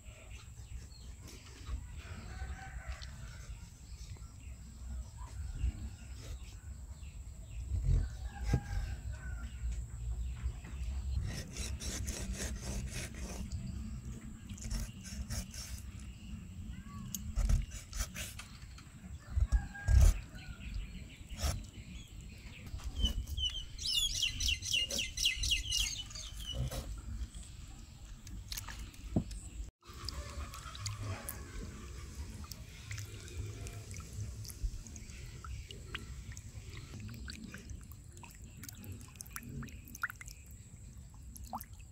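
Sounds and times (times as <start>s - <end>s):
bird chirping: 6.7s - 29.7s
water splashing in basin: 29.8s - 40.6s.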